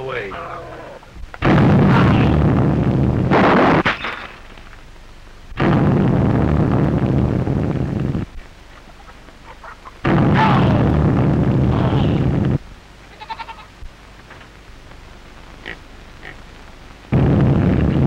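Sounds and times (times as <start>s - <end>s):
loud explosion blast: 1.4s - 4.2s, 5.6s - 8.3s, 10.0s - 12.6s, 17.1s - 18.0s
faint high-pitched cries: 13.1s - 13.8s.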